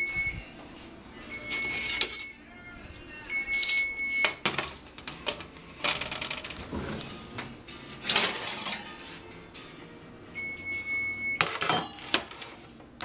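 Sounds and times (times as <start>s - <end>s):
baking sheets clanking on oven racks: 7.9s - 9.2s.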